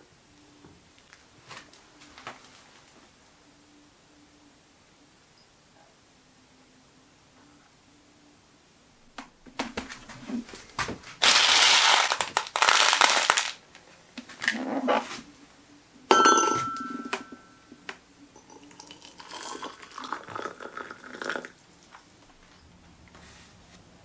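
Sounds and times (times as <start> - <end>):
plastic pellets rattling in a tub: 11.2 - 13.6
ceramic mug clink: 16.1 - 17.5, 18.4 - 21.5
water pouring into a mug: 18.4 - 21.6.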